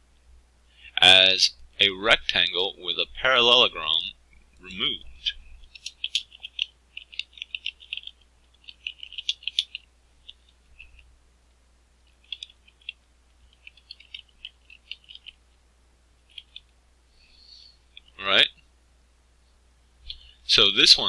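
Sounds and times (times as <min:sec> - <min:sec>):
computer keyboard typing: 0:05.7 - 0:11.0, 0:12.2 - 0:15.4, 0:16.3 - 0:16.6.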